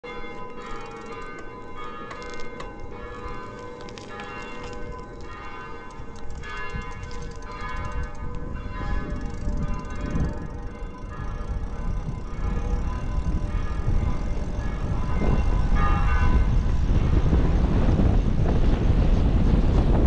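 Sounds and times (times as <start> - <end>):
bells ringing: 0.0 - 17.8.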